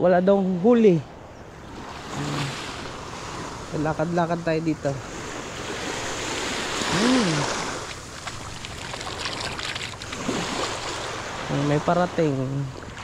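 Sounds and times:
small sea waves washing: 0:01.5 - 0:13.0
short vocal sound: 0:02.1 - 0:02.6, 0:06.8 - 0:07.7
feet splashing in surf: 0:05.1 - 0:13.0.

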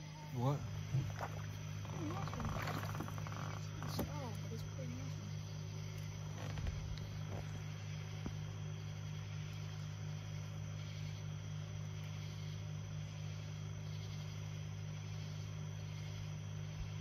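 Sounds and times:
small motor humming: 0:00.0 - 0:17.0.

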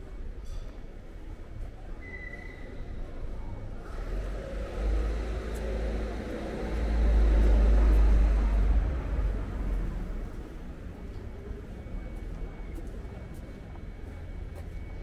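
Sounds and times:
vehicle passing: 0:03.8 - 0:10.7.

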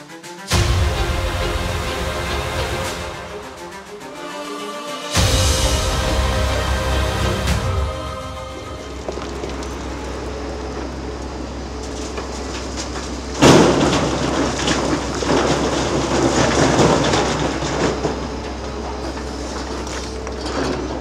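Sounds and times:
excavator engine drone: 0:00.0 - 0:21.0
rock crashing and grinding: 0:11.9 - 0:21.0.

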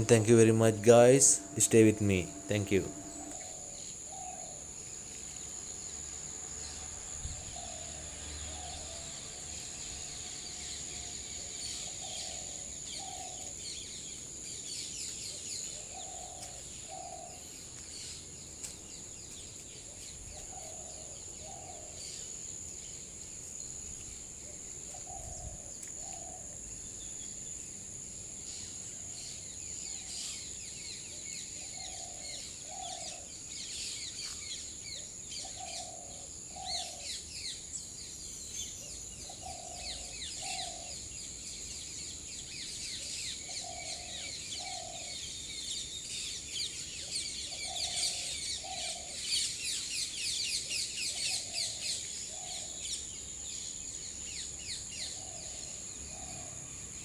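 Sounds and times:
low two-note bird call: 0:00.0 - 0:03.6
high insect drone: 0:00.0 - 0:57.0.

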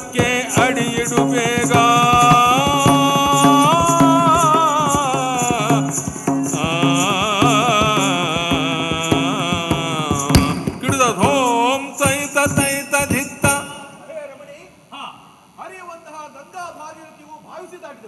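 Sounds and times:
sharp percussion strike: 0:00.0 - 0:13.9
person singing ornamented long notes: 0:00.0 - 0:14.0.

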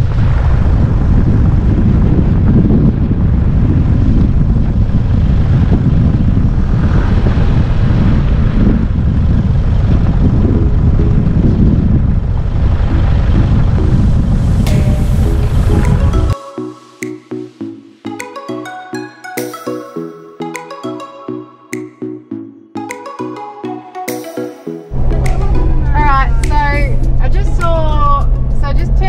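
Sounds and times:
wind buffeting microphone: 0:00.0 - 0:16.4, 0:24.9 - 0:29.0.

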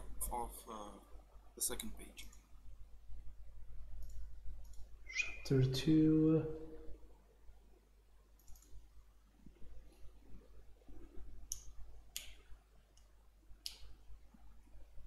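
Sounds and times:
low steady hum: 0:00.0 - 0:15.0
computer mouse clicks: 0:04.0 - 0:04.9, 0:08.4 - 0:08.8.

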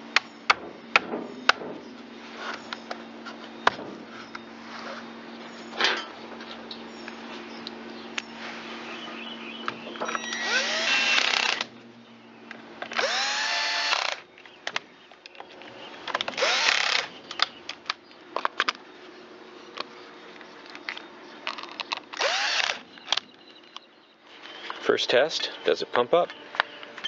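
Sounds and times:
power drill whining: 0:10.1 - 0:11.7, 0:12.9 - 0:14.2, 0:16.4 - 0:17.1, 0:22.2 - 0:22.8
clicks and clatter of parts: 0:19.7 - 0:22.2.

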